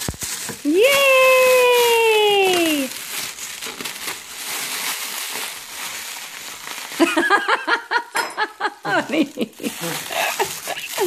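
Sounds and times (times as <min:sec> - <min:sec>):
plastic bag crinkling: 0:00.0 - 0:11.0
high-pitched voice sounds: 0:00.6 - 0:03.0.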